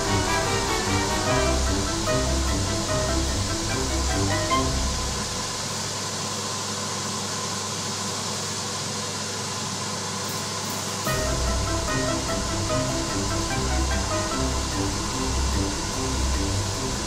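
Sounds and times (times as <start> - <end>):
background music: 0.0 - 5.5, 11.1 - 17.0
workshop machinery hissing: 0.0 - 17.0
low hum: 11.1 - 17.0.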